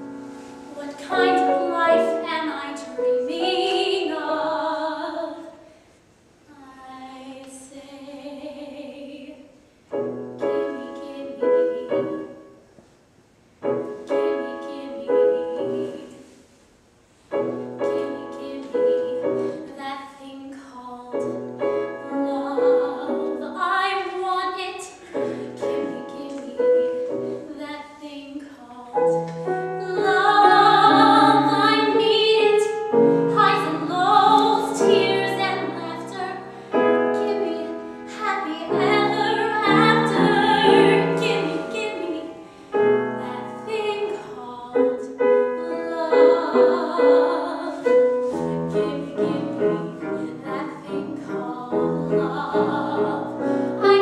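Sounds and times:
grand piano chords: 0:00.0 - 0:05.7, 0:09.9 - 0:12.7, 0:13.6 - 0:16.4, 0:17.3 - 0:54.0
woman singing operatically: 0:00.7 - 0:05.5, 0:29.8 - 0:36.4, 0:37.1 - 0:42.4, 0:43.2 - 0:47.8.

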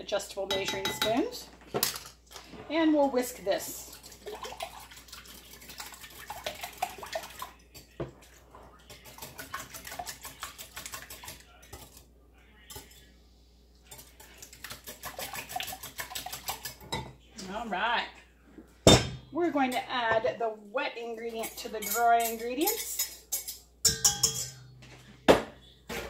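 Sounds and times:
whisk clattering against glass bowl: 0:00.5 - 0:01.2, 0:08.9 - 0:12.0, 0:13.9 - 0:17.1, 0:21.4 - 0:24.6.

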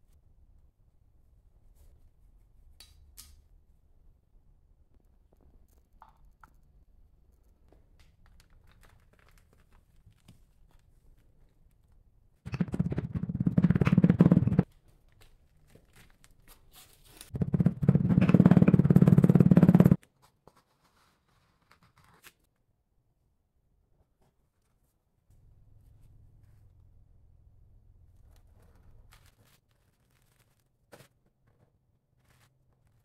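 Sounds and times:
hand rammer pounding sand: 0:12.5 - 0:14.6, 0:17.3 - 0:20.0.

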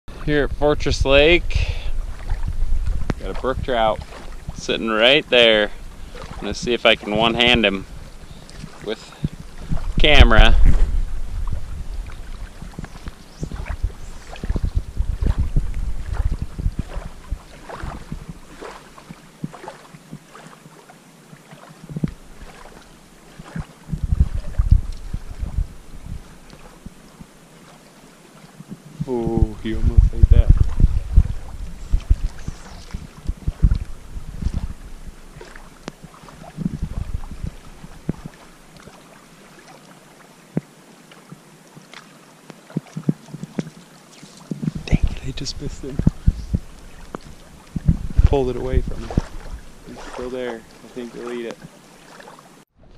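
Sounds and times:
wind buffeting microphone: 0:00.1 - 0:18.8, 0:21.9 - 0:22.7, 0:23.4 - 0:27.3, 0:28.6 - 0:38.6, 0:44.5 - 0:51.6
small waves lapping: 0:00.1 - 0:52.9.

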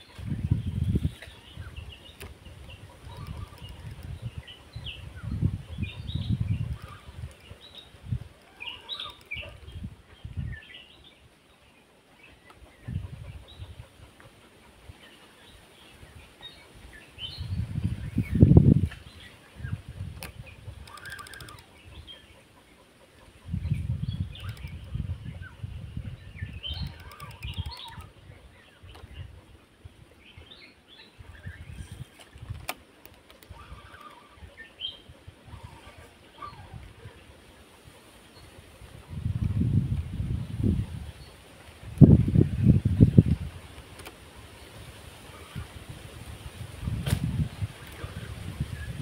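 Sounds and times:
wind rumble on microphone: 0:00.0 - 0:10.9, 0:12.7 - 0:14.2, 0:15.9 - 0:22.1, 0:23.4 - 0:30.5, 0:31.2 - 0:32.7, 0:33.4 - 0:49.0
small birds chirping: 0:00.0 - 0:45.7.

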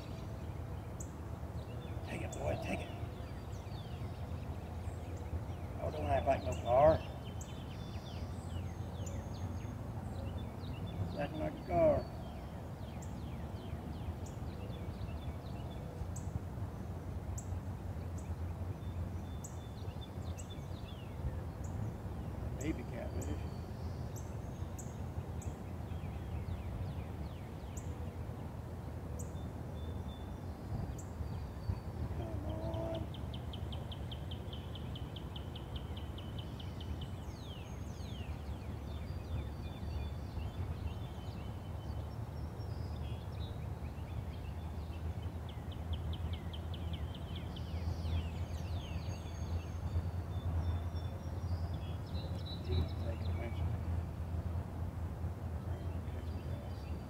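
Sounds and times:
birds chirping: 0:00.0 - 0:54.8, 0:55.4 - 0:57.0
lower bird call: 0:29.2 - 0:43.3.

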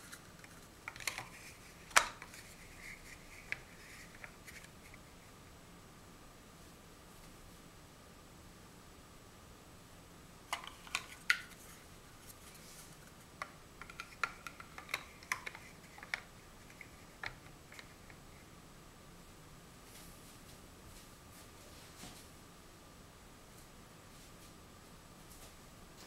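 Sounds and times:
plastic blocks clicking: 0:13.4 - 0:17.9.

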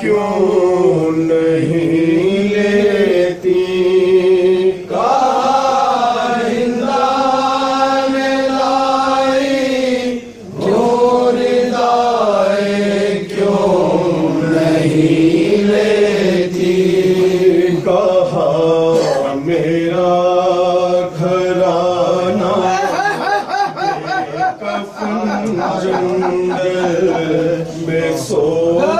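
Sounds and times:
person chanting mourning lament: 0:13.3 - 0:28.9.

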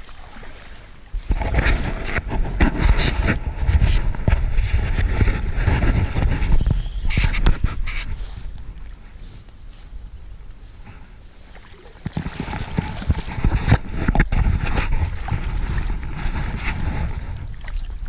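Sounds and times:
wind rumble on microphone: 0:00.0 - 0:18.0
fish splashing and thrashing: 0:11.4 - 0:18.0.

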